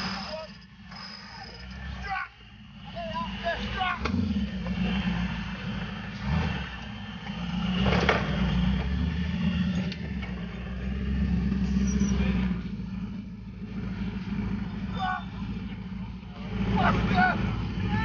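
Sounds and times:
off-road vehicle engine revving: 0:00.0 - 0:18.0.

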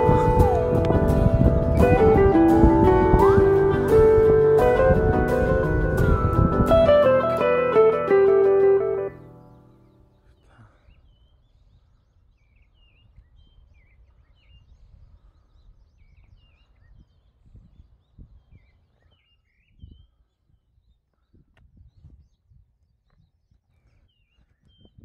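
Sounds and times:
soft low thumps: 0:00.0 - 0:07.3
guitar chord: 0:00.0 - 0:09.5.

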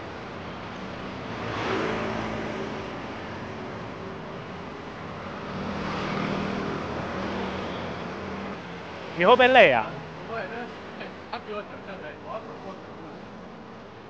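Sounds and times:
steady traffic noise: 0:00.0 - 0:14.0
motor scooters passing: 0:00.7 - 0:11.0.

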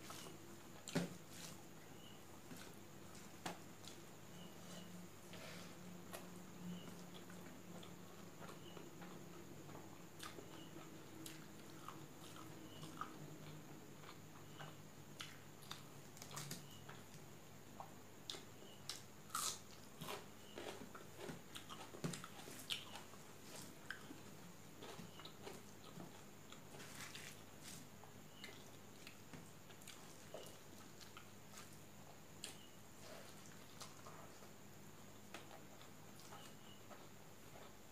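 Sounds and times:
chewing rice: 0:06.1 - 0:37.9.

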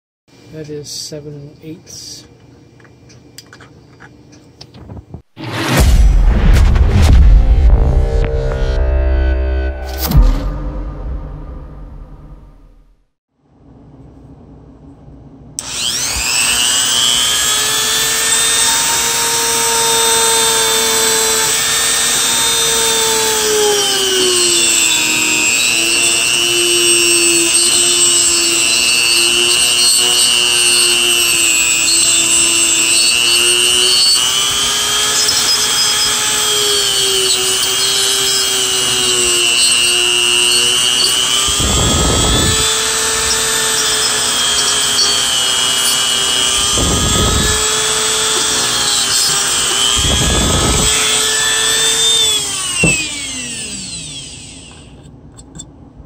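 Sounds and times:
low thump: 0:04.9 - 0:12.9
rotary tool whining: 0:15.6 - 0:55.6
bit grinding metal cover: 0:15.7 - 0:55.6.

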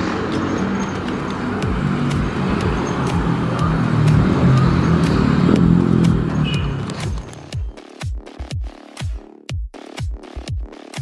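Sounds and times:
engine drone: 0:00.0 - 0:07.8.

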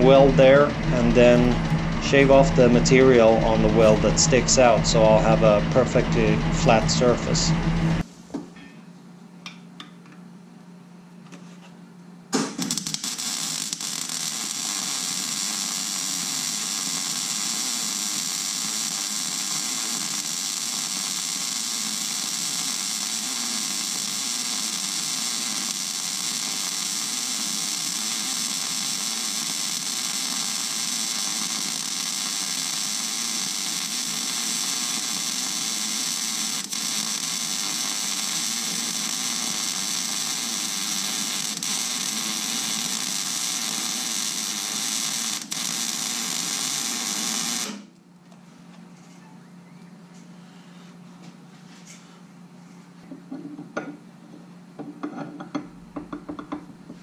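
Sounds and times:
welding arc crackling hiss: 0:00.0 - 0:08.1, 0:12.3 - 0:47.9.

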